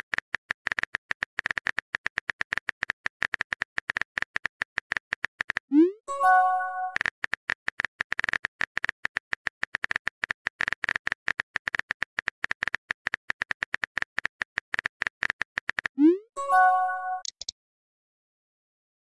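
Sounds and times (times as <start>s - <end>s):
phone keyboard typing clicks: 17.0s - 17.5s.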